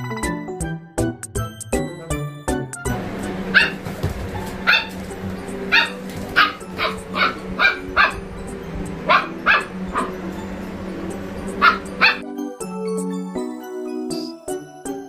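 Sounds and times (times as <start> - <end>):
steady low hum: 3.0 - 12.2
dog barking: 3.5 - 5.1, 5.7 - 8.2, 9.0 - 10.3, 11.6 - 12.2.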